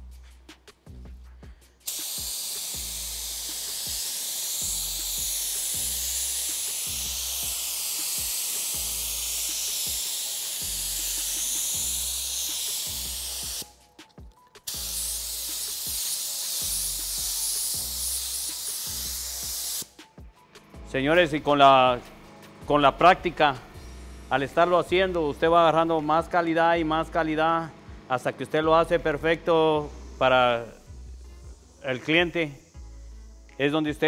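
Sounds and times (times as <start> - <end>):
compressed air hissing: 0.0 - 14.0, 14.6 - 20.1, 28.9 - 34.0
music with bass beat: 0.0 - 25.8, 26.8 - 34.0.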